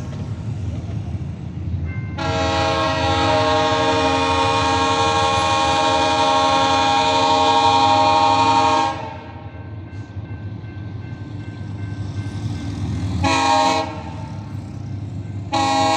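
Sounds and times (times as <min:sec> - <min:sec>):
train rumble: 0:00.0 - 0:15.9
locomotive air horn blast: 0:02.2 - 0:09.4, 0:13.2 - 0:14.4, 0:15.5 - 0:15.9.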